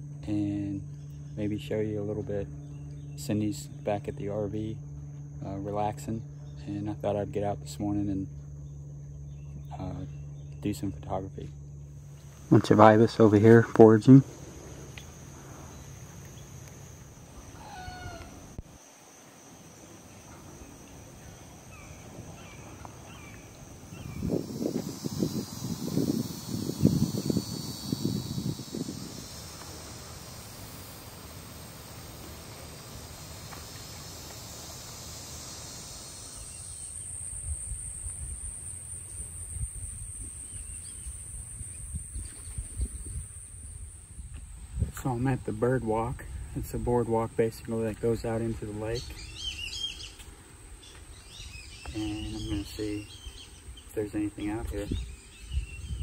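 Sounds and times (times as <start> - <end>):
insect trill: 0.0 - 56.0
drawn-out bird call: 12.1 - 18.6, 19.5 - 35.0.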